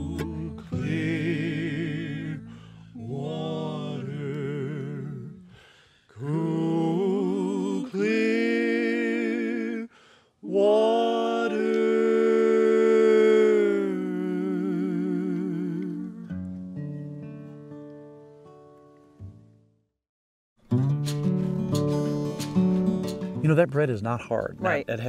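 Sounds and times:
men singing in close harmony: 0:00.0 - 0:16.3
light instrumental backing: 0:20.8 - 0:25.0.

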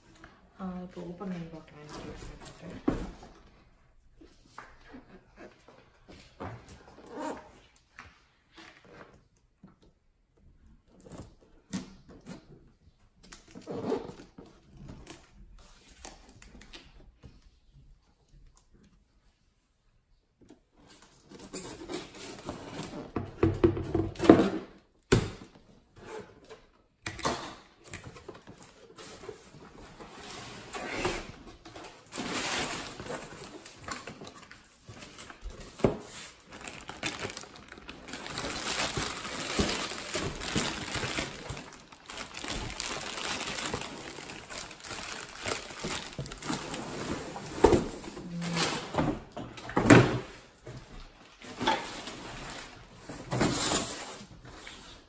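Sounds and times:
plastic and paper rustling: 0:28.0 - 0:49.0.

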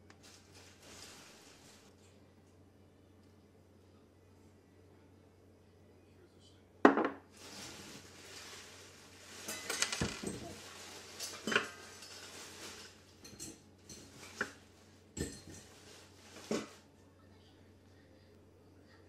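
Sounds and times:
dishes and cutlery clinking: 0:09.4 - 0:16.8.

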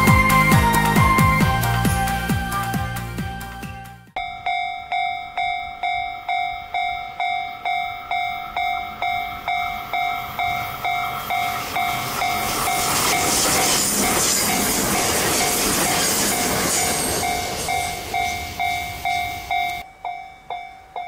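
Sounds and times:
electric train passing: 0:00.0 - 0:03.2, 0:04.1 - 0:21.0
level crossing bell ringing: 0:04.2 - 0:12.8, 0:16.9 - 0:21.0.

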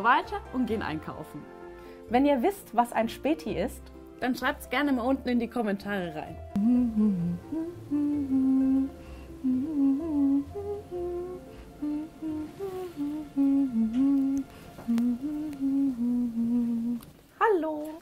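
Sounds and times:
soft background music: 0:00.0 - 0:18.0
person humming: 0:06.5 - 0:17.1.

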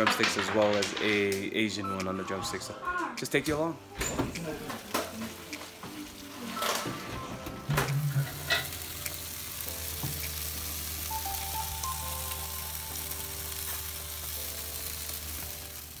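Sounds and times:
meat sizzling on a grill: 0:04.4 - 0:16.0.

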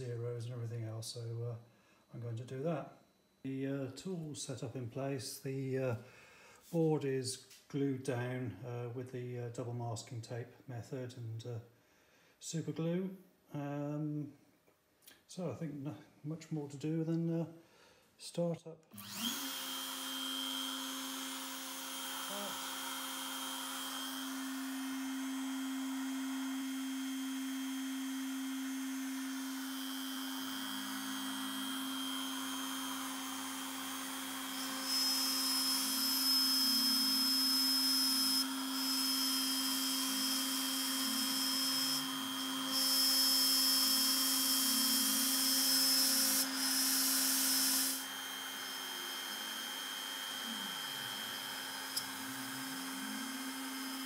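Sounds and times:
router whining: 0:18.9 - 0:54.0
stepper motors whirring: 0:19.0 - 0:24.5.

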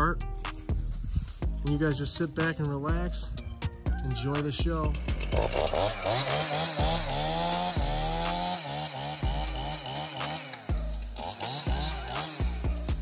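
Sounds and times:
chainsaw revving and cutting: 0:04.3 - 0:13.0.

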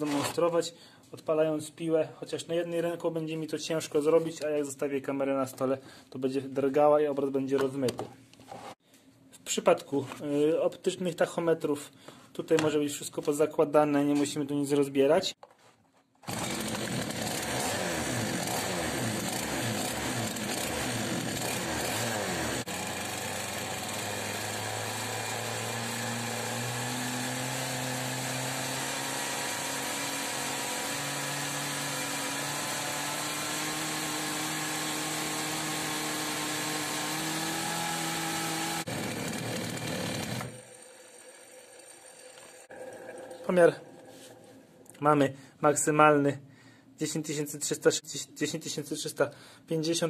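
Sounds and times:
chainsaw engine revving: 0:16.2 - 0:42.8.

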